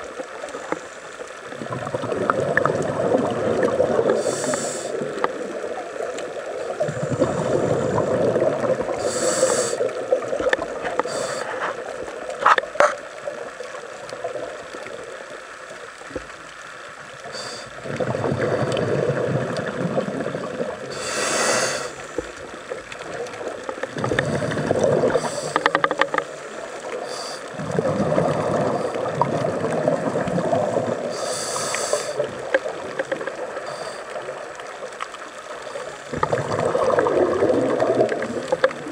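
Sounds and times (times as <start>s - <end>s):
bubbles gurgling underwater: 0.0s - 11.2s, 17.0s - 21.1s, 22.0s - 38.9s
regulator inhalation hiss: 4.1s - 5.1s, 8.9s - 10.0s, 11.0s - 11.9s, 17.2s - 17.8s, 20.8s - 22.3s, 24.2s - 25.8s, 26.9s - 27.6s, 31.0s - 32.4s, 33.6s - 34.2s.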